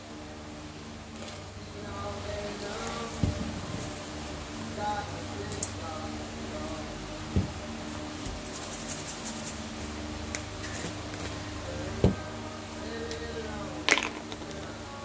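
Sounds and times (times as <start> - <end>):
faint background music: 0.0 - 15.0
plastic bottles knocking on table: 13.9 - 14.6.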